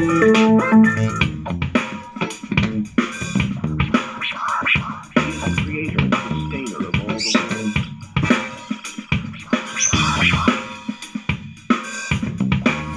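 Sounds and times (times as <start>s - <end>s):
music from portable speaker: 0.0s - 12.9s.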